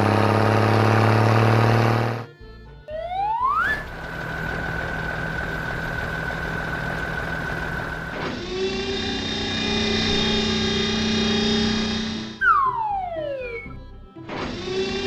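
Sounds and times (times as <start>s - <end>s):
engine rumble: 0.0s - 12.4s
music: 2.2s - 4.1s, 11.8s - 15.0s
cartoon machinery whine: 3.0s - 13.7s, 14.3s - 15.0s.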